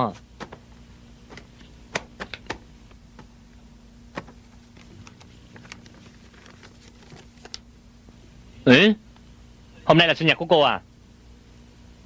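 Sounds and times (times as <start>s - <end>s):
low steady hum: 0.0s - 12.0s
tissue paper rustling: 4.6s - 7.6s.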